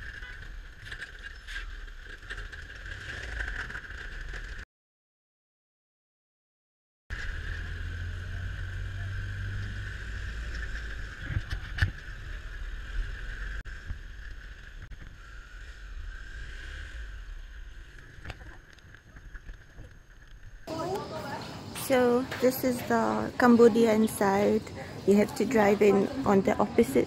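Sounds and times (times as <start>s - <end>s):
wind and road noise: 7.1s - 27.0s.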